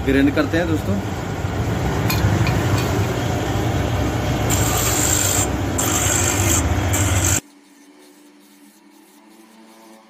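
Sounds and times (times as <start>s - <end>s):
metal grinding on stone: 4.5s - 10.0s.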